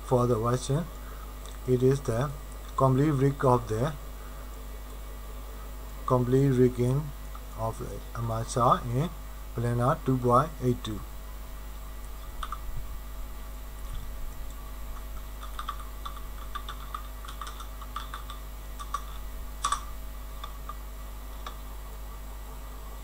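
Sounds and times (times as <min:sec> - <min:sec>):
steady low hum: 0:00.0 - 0:23.0
keyboard typing clicks: 0:15.4 - 0:20.8.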